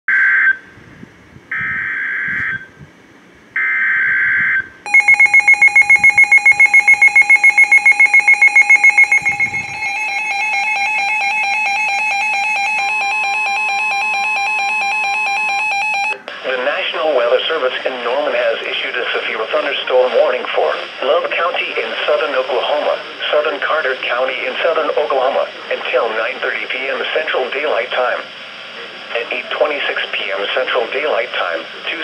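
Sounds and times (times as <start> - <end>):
rapid alarm beeping: 3.6 - 16.2
steady multi-tone alarm: 3.6 - 16.2
digital data tone bursts: 4.9 - 16.2.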